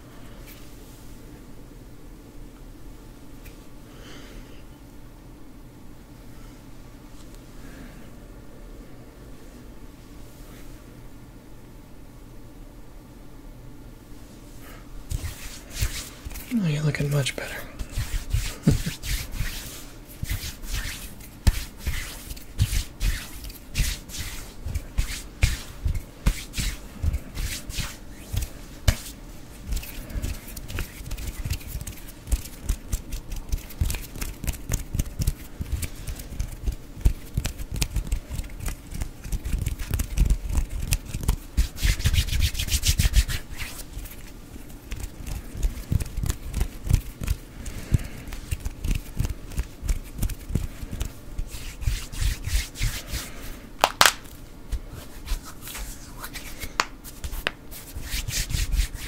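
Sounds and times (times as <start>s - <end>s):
hands rubbing together: 15.1s - 59.0s.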